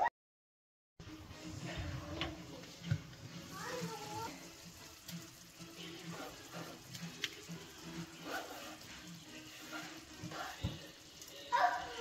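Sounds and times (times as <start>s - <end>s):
gravy simmering in frying pan: 2.3s - 11.5s.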